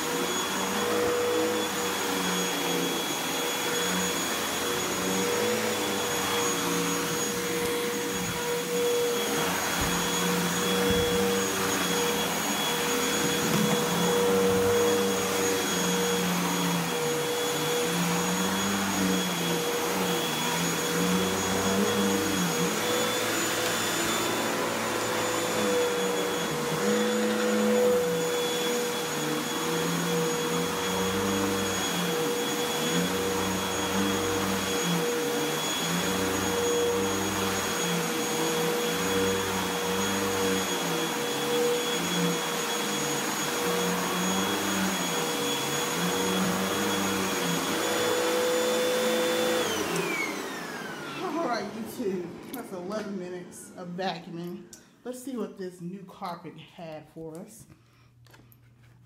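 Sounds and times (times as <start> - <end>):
vacuum cleaner on carpet: 0.0 - 54.0.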